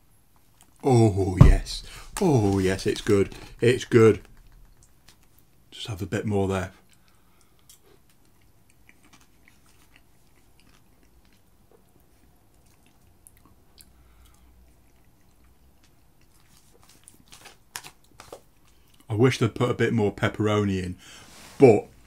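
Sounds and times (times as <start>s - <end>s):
person chewing food: 6.8s - 19.1s.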